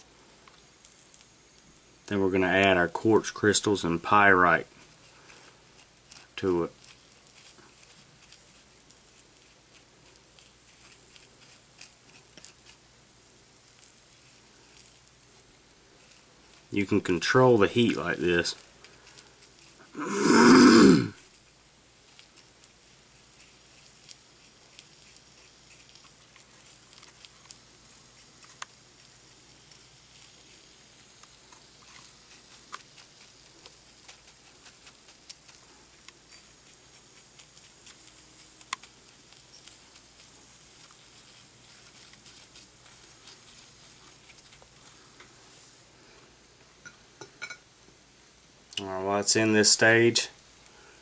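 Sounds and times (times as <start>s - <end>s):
crackling and tiny pops: 0.1s - 2.2s, 21.2s - 45.8s.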